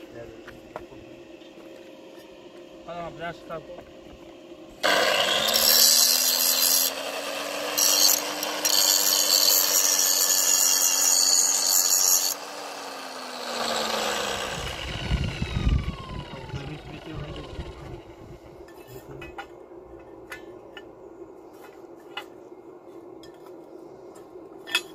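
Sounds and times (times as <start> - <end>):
power tool cutting: 4.8 - 18.1.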